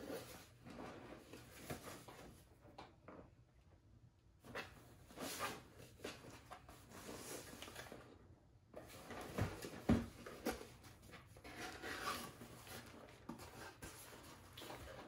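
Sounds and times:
cardboard boxes rustling: 8.8 - 15.0.

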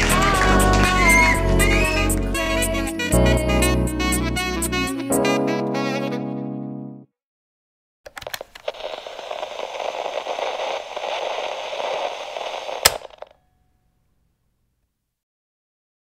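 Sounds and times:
crackling static noise: 8.1 - 13.4
sharp loud click: 11.9 - 13.4.

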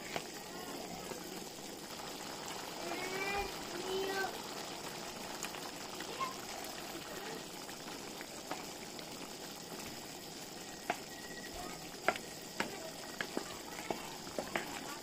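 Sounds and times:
sauce bubbling in a frying pan: 0.0 - 15.0
wooden spatula knocking pan: 12.0 - 14.9.

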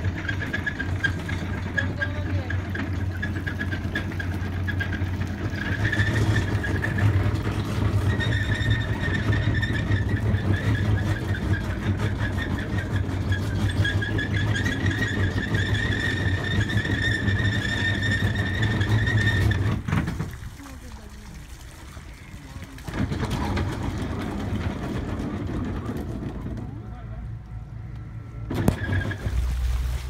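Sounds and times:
motor humming with whine: 26.4 - 29.2.

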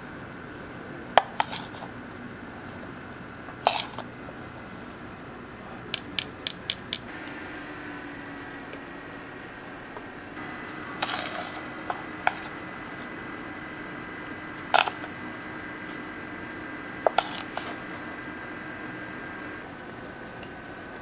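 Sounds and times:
steady electrical hum: 0.0 - 21.0.

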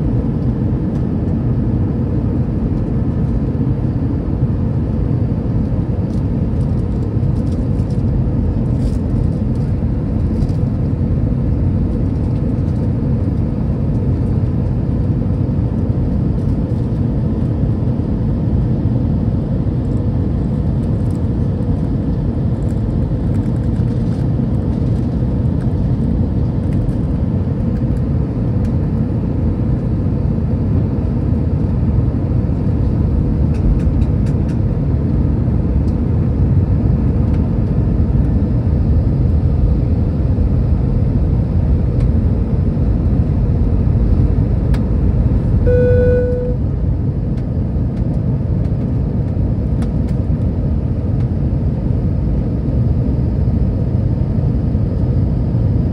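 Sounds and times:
airplane cabin roar: 0.0 - 55.9.

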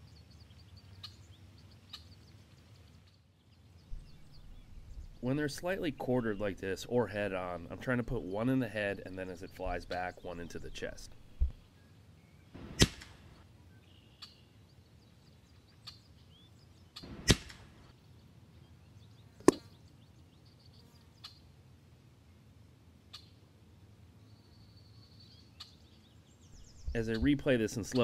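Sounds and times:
faint bird chirps: 0.0 - 6.6, 13.7 - 17.1, 24.2 - 28.0
air rifle shots: 12.6 - 13.4, 17.0 - 17.8.

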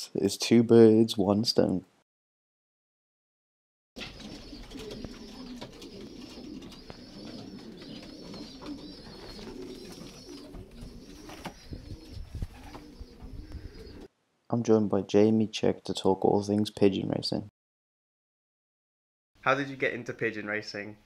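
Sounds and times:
pigeons cooing: 4.0 - 14.1.

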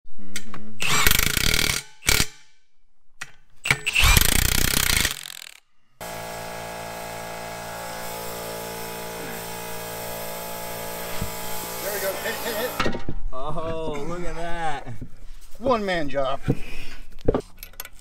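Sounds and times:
impact wrench hammering: 3.7 - 13.0.

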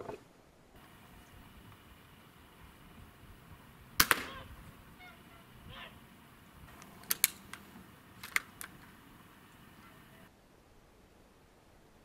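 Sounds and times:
air rifle clicks: 3.9 - 4.8, 6.4 - 10.3.

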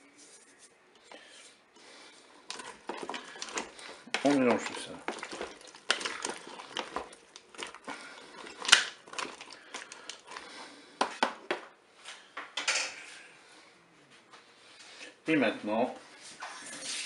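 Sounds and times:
wooden spatula stirring food: 0.3 - 11.6.

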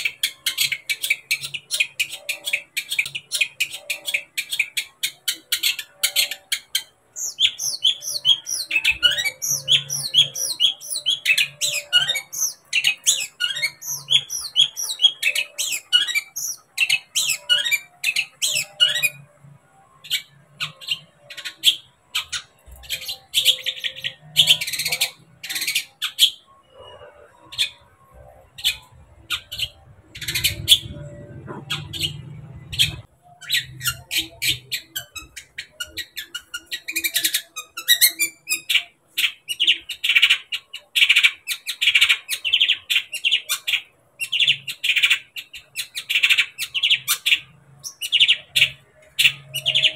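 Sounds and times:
bird calls: 0.0 - 49.9.

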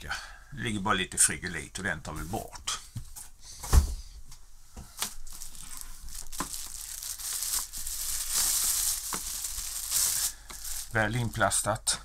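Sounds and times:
plastic wrapping crinkling: 5.0 - 11.8.

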